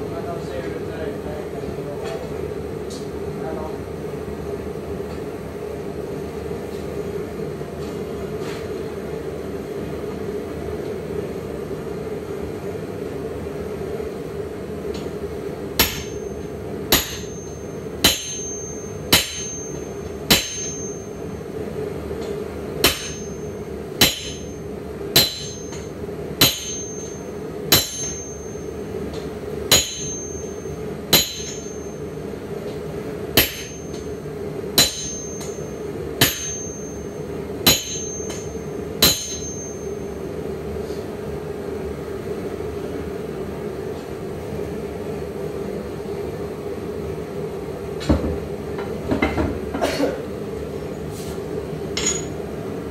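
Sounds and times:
sledgehammer ringing on steel: 15.8s - 21.2s, 22.8s - 24.6s, 25.2s - 28.7s, 29.7s - 32.0s, 33.4s - 34.1s, 34.8s - 40.0s, 52.0s - 52.4s.

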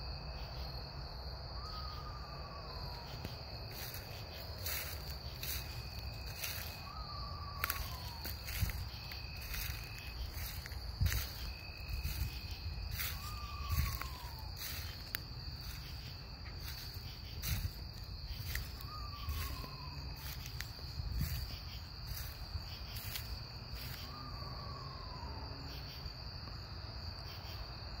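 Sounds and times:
high insect trill: 0.0s - 28.0s.

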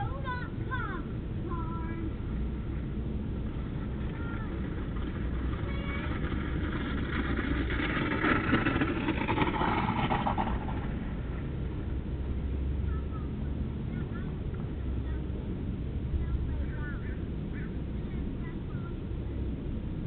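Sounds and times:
sled scraping over icy snow: 1.5s - 15.2s.

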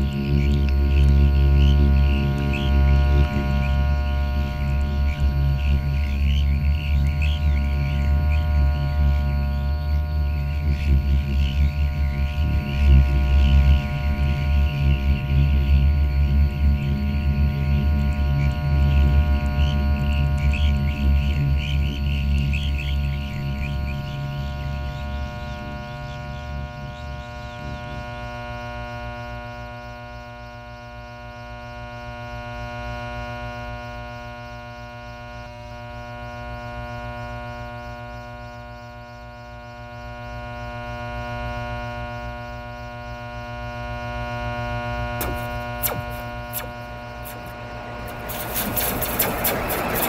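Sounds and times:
synthesizer drone: 0.0s - 29.8s, 39.2s - 50.0s
fast mechanical rattle: 45.2s - 50.0s
sharp clicks: 45.2s - 50.0s.

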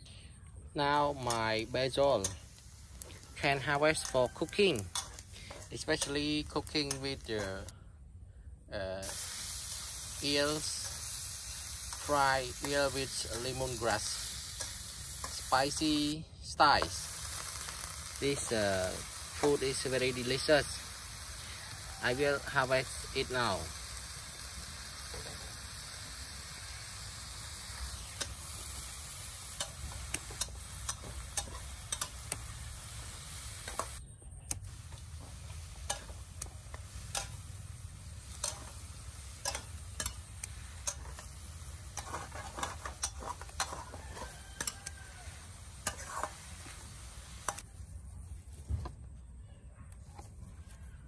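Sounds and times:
steady hiss: 0.0s - 7.8s, 8.5s - 48.5s
leaves rustling: 34.6s - 48.9s.

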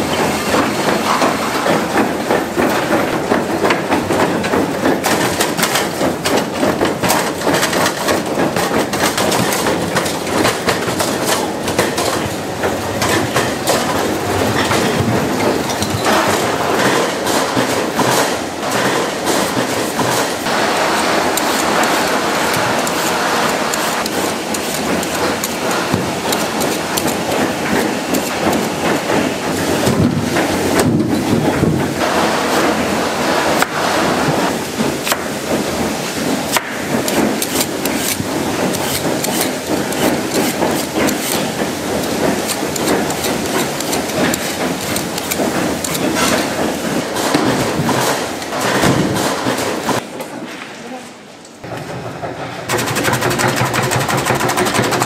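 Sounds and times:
food-processing machinery noise: 0.0s - 55.0s
sharp knocks and clatter: 0.1s - 32.8s, 33.6s - 50.8s, 51.6s - 55.0s.

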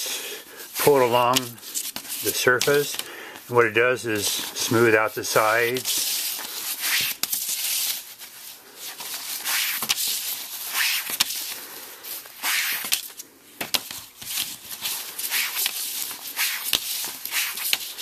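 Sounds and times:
cloth rubbing leather edge: 6.8s - 7.3s, 9.4s - 10.0s, 10.6s - 11.3s, 12.4s - 13.0s, 14.8s - 18.0s.

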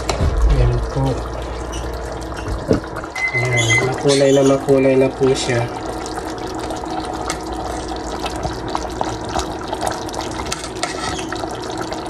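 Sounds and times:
tap water splashing into sink: 0.0s - 3.0s.

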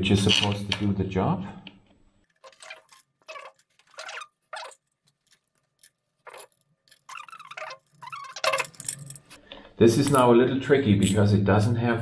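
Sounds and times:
metal on metal clicks and scrapes: 2.3s - 9.4s.

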